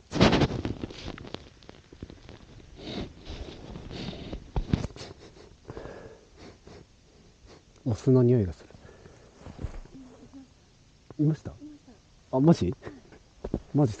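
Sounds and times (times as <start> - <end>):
clothing rustle: 9.3 - 10.4.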